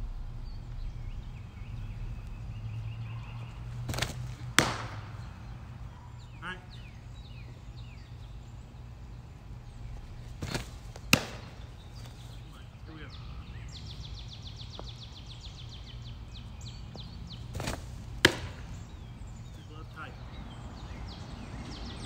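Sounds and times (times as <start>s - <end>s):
birds chirping: 0.0s - 22.0s
softball smacking into glove: 3.8s - 5.3s, 10.3s - 12.2s, 17.5s - 18.8s.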